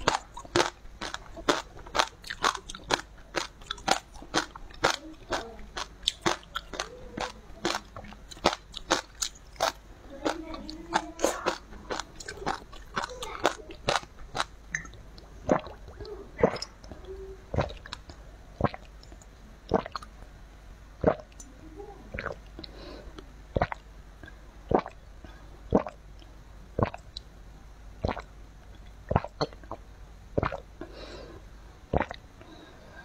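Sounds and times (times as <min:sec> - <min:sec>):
gulping from a bottle: 0:00.0 - 0:18.0, 0:19.7 - 0:20.1, 0:21.0 - 0:21.4, 0:22.1 - 0:22.4, 0:24.7 - 0:25.0, 0:25.7 - 0:26.0, 0:28.0 - 0:28.3, 0:29.1 - 0:29.8, 0:30.4 - 0:30.6, 0:31.9 - 0:32.2
chewing with wet clicks: 0:00.0 - 0:20.1.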